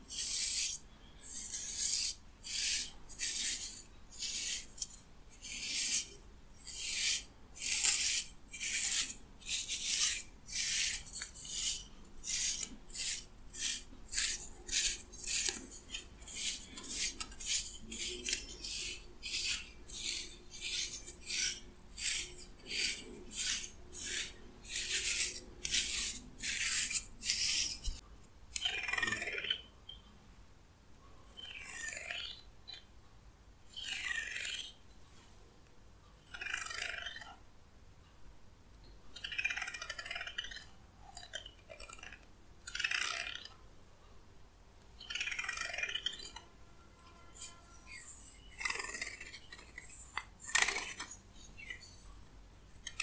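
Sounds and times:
comb strokes through hair: 0.1s - 28.0s.

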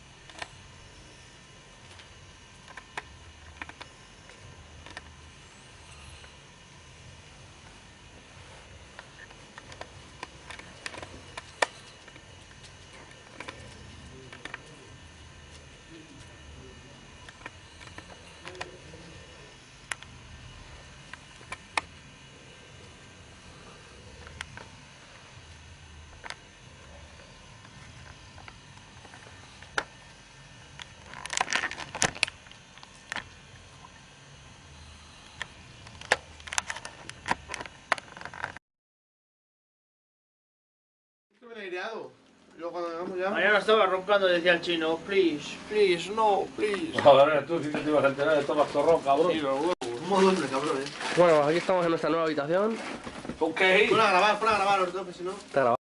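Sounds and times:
low steady hum: 0.0s - 38.6s
crackling rustle of bedding: 47.6s - 55.8s.

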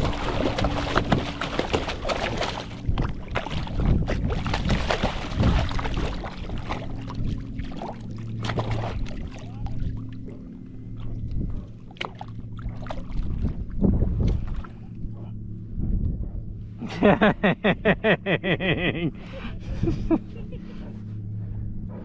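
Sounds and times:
water splashes: 0.0s - 14.9s
boat motor humming: 0.0s - 22.0s.

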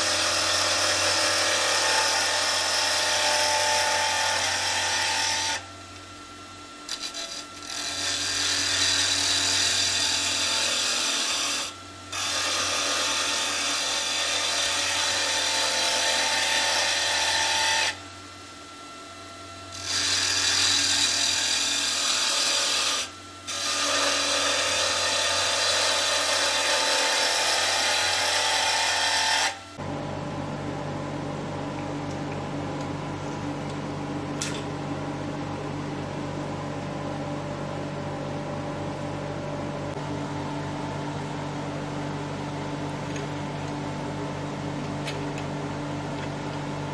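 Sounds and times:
lathe humming: 0.0s - 6.0s, 6.8s - 18.0s, 19.7s - 33.8s.

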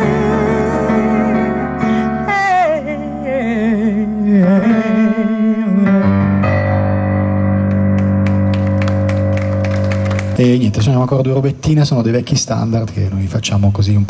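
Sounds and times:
woman singing with vibrato: 0.0s - 6.4s
stage piano: 0.0s - 14.0s.

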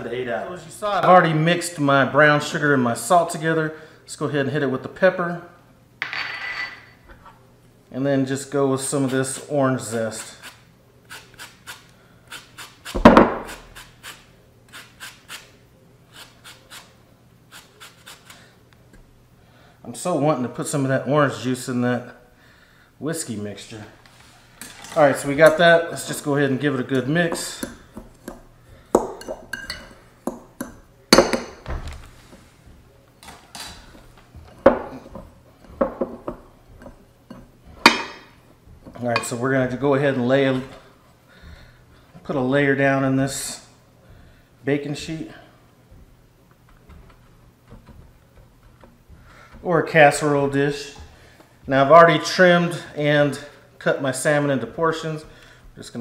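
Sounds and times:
grater scraping peel: 17.5s - 18.4s.

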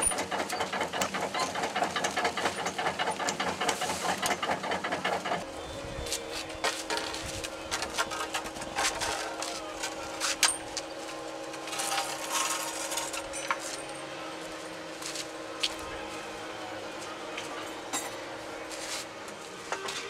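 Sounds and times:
steady hum: 4.8s - 20.0s.

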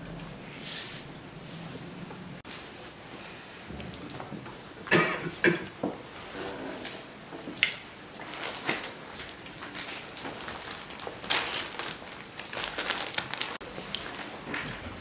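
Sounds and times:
plastic bag crinkling: 8.2s - 14.4s.

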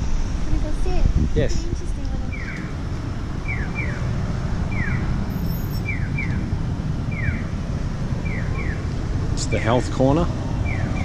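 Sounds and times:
low street rumble: 0.0s - 11.0s
crossing signal chirping: 2.2s - 9.0s, 10.5s - 11.0s.

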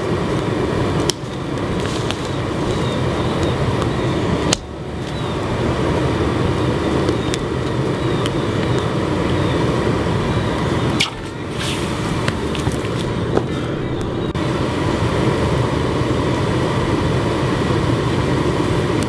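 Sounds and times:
furnace roaring under forced air: 0.0s - 19.0s
sharp cracks: 11.0s - 13.5s.

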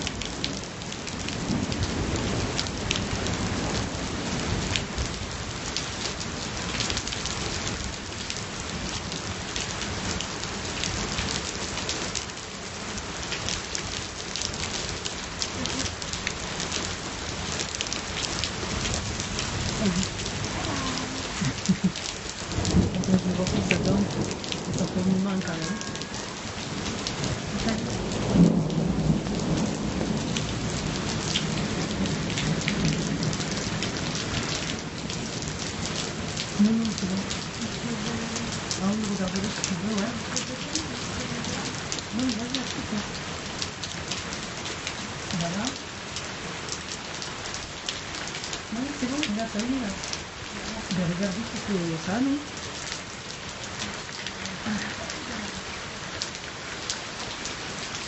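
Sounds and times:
thunder rumbling: 0.0s - 5.2s, 15.6s - 43.7s
rain falling: 0.0s - 58.0s
raindrops hitting a surface: 0.0s - 58.0s.

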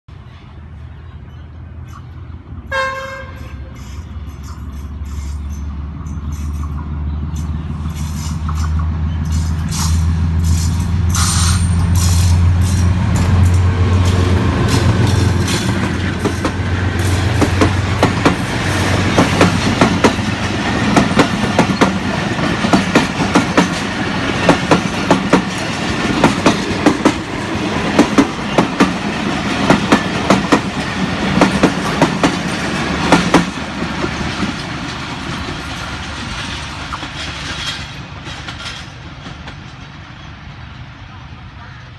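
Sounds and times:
locomotive horn blast: 2.7s - 3.8s
wheels clacking over rail joints: 3.7s - 40.2s.

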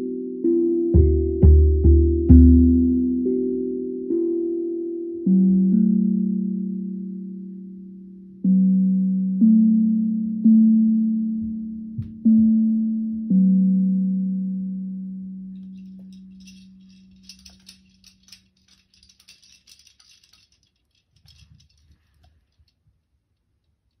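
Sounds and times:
hand shaker rattling: 15.6s - 22.8s.

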